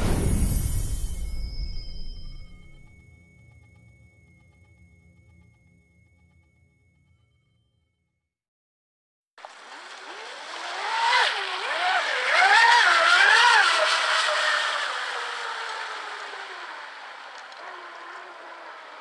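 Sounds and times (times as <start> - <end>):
hull and spray hiss: 0.0 - 1.6
electric motor whine: 9.4 - 19.0.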